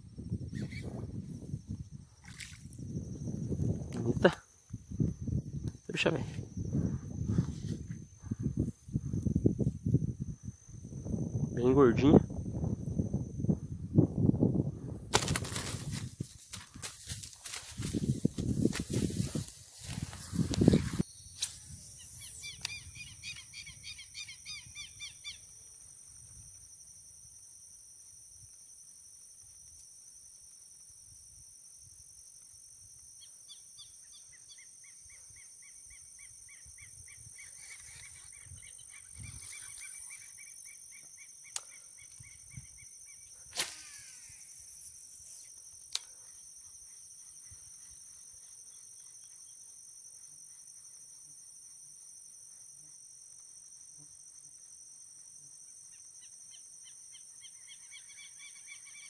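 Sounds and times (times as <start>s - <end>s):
high-pitched insect drone: 0.0s - 32.0s, 32.8s - 59.0s
bird chirps: 0.5s - 1.0s, 20.8s - 25.5s.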